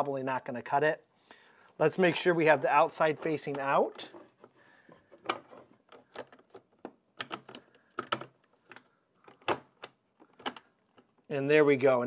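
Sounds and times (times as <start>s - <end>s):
plastic parts clicking and knocking: 2.9s - 11.3s.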